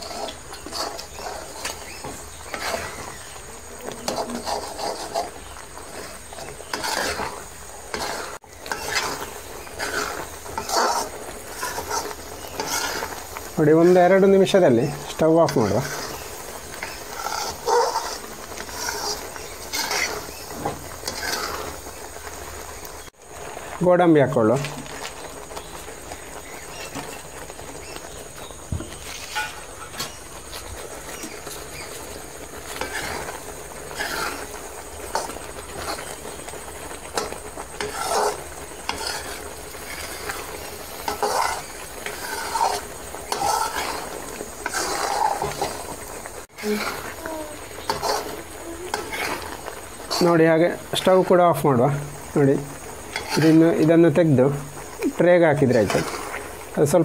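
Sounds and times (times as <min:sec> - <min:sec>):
metal spoon scraping a steel pan: 0:00.0 - 0:03.3, 0:03.9 - 0:13.2, 0:14.9 - 0:21.7, 0:29.1 - 0:30.2, 0:32.7 - 0:34.5, 0:37.2 - 0:45.8, 0:46.6 - 0:47.2, 0:47.8 - 0:50.4, 0:53.1 - 0:53.8.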